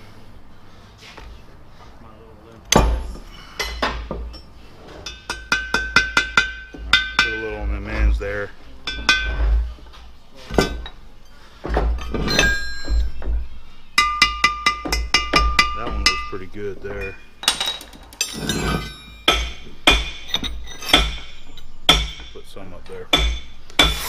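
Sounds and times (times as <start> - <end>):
hammer striking metal: 2.7 - 7.7, 8.8 - 9.5, 11.9 - 24.0.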